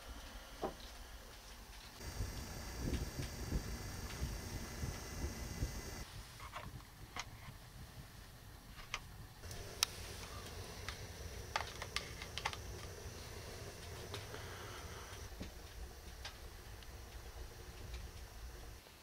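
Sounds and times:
low steady rumble: 2.0 - 6.1, 9.2 - 18.9.

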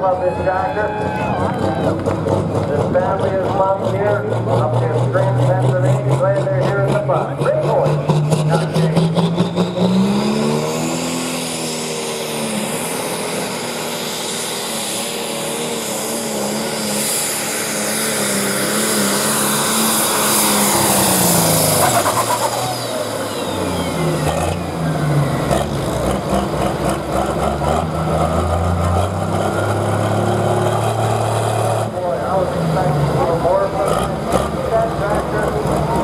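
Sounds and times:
high turbo whine: 0.0 - 36.0
tractor diesel engine revving: 0.0 - 36.0.

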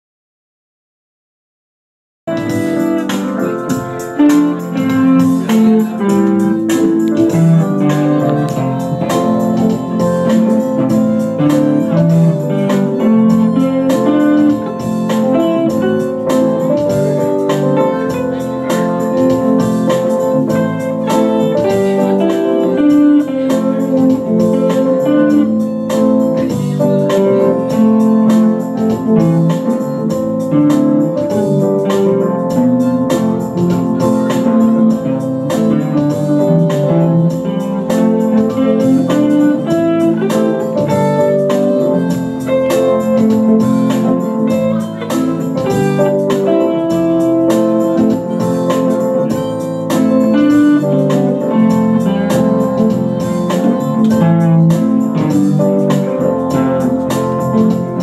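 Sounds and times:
electric guitar solo: 2.3 - 58.0
organ keyboard chords: 2.3 - 58.0
second electric guitar: 2.3 - 58.0.

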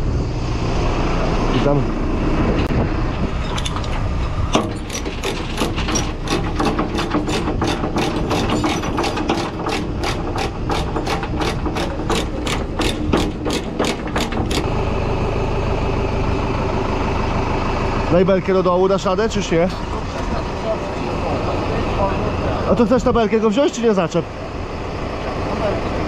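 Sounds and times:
engine idling: 1.6 - 26.0
ratchet clicking: 4.6 - 14.7.

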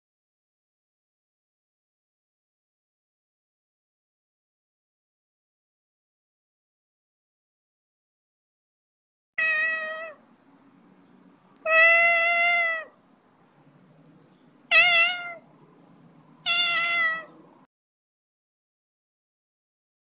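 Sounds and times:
cat meowing: 9.4 - 10.2, 11.6 - 13.0, 14.7 - 15.5, 16.4 - 17.4
faint low background noise: 9.4 - 17.7.

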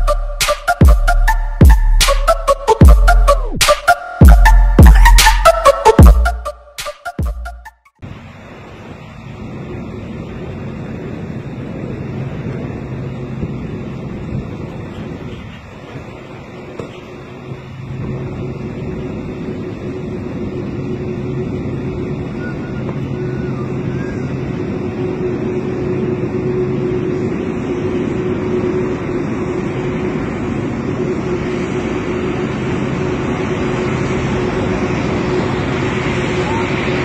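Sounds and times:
jet engines taxiing: 0.0 - 37.0.

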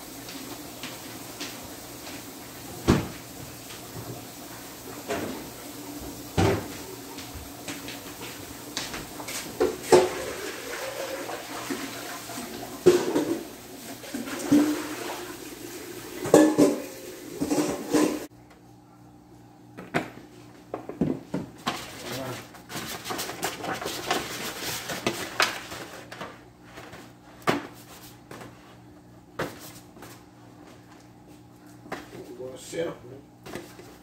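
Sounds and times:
running tap water: 0.0 - 18.3
dishes and utensils clinking: 16.2 - 18.3.

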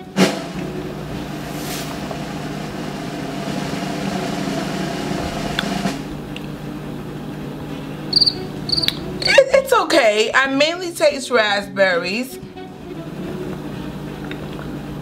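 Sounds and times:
machine hum and hiss: 0.0 - 9.3.

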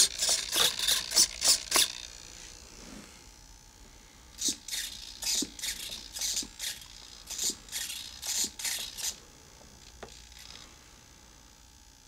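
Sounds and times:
small servos whirring: 0.0 - 3.4, 4.3 - 11.0.

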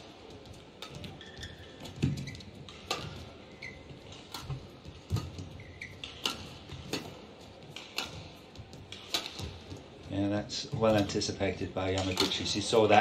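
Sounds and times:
players' footfalls: 0.0 - 13.0
shoe squeaks on court: 0.8 - 7.1
racket striking shuttlecock: 0.8 - 9.8.

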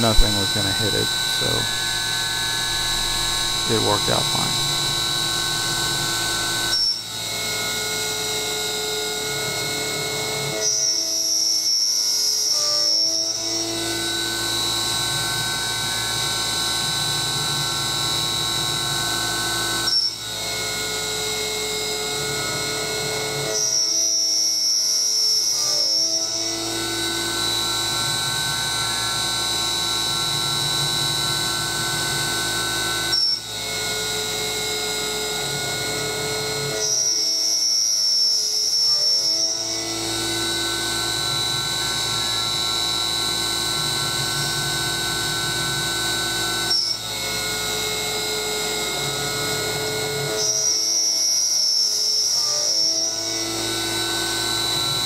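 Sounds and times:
high-pitched tone: 0.0 - 6.9
milling spindle whine: 0.0 - 11.7, 26.0 - 55.0
end mill cutting aluminum: 0.2 - 7.0.

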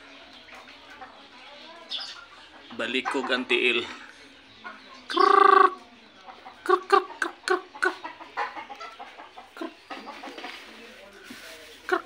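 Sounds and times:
rooster clucking: 1.9 - 3.9, 4.6 - 10.8.

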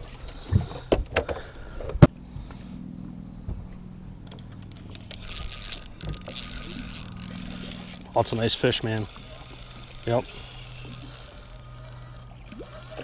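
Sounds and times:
low steady hum: 0.0 - 13.0
small clicks and rattles: 4.2 - 13.0.

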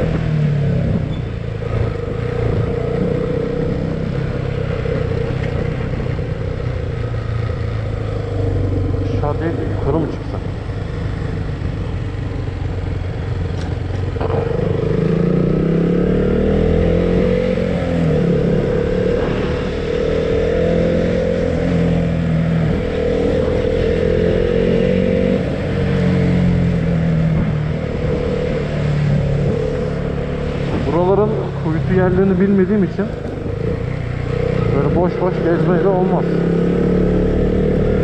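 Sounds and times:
motorcycle engine: 0.0 - 38.0.

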